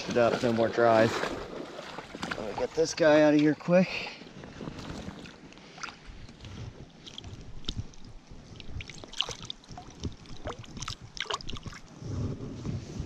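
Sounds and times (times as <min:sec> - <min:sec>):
water splashing and dripping: 0:07.0 - 0:11.9.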